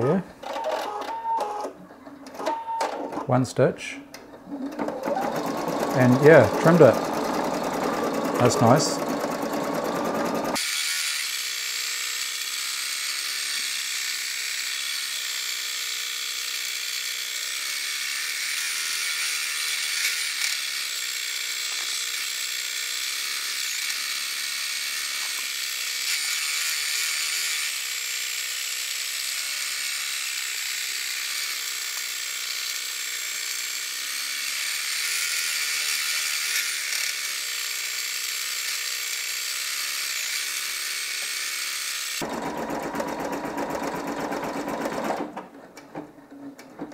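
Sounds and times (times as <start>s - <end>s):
embroidery machine stitching: 4.4s - 10.6s, 42.2s - 45.5s.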